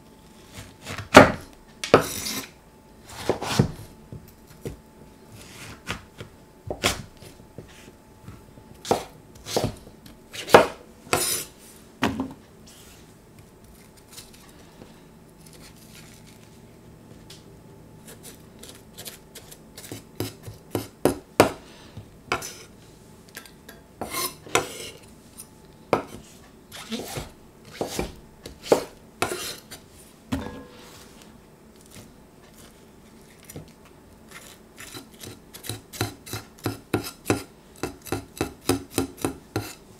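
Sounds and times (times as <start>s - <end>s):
knife cutting on cutting board: 26.8s - 29.6s.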